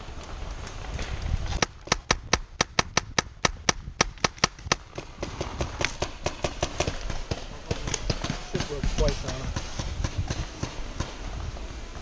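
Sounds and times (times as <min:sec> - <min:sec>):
faint paintball shots: 0:01.5 - 0:11.3
paintball marker firing rapidly: 0:01.6 - 0:11.2.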